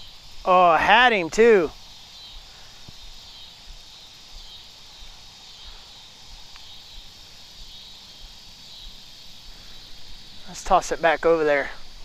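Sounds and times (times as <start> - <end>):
high-pitched insect chorus: 0.0 - 12.0
faint ticks: 2.3 - 10.1.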